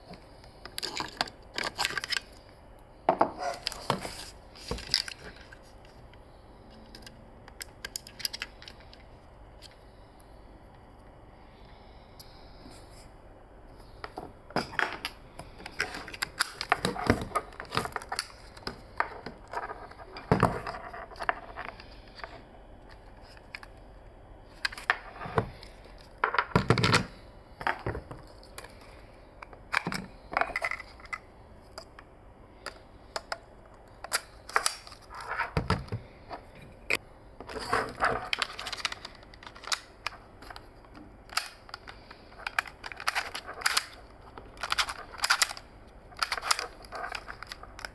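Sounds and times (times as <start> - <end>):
plastic parts rubbing: 34.0 - 47.9
plastic camera parts clicking: 38.2 - 40.6, 41.3 - 44.0, 44.6 - 45.6, 46.2 - 47.9.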